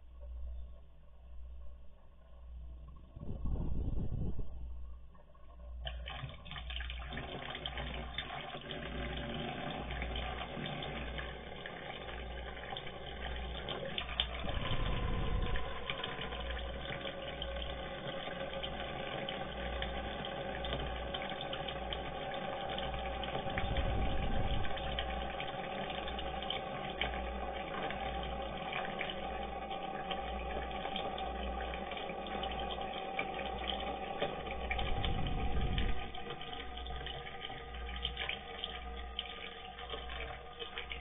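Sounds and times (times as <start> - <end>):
faint ringing tone: 0.0 - 5.8, 13.3 - 26.4.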